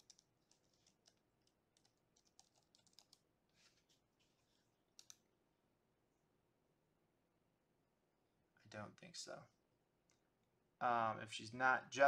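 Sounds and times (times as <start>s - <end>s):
computer keyboard typing: 0.0s - 3.2s, 5.0s - 5.2s.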